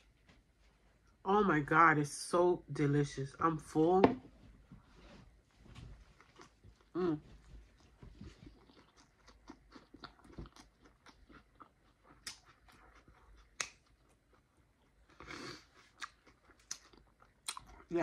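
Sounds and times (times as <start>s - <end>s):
chewing with wet mouth clicks: 8.2s - 17.9s.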